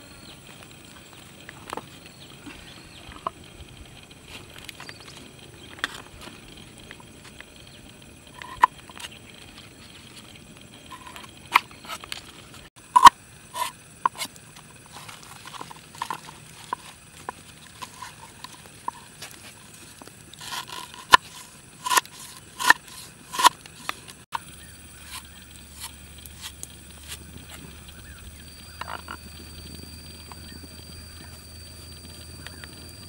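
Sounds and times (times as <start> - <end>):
knife chopping on wooden board: 21.8 - 23.5.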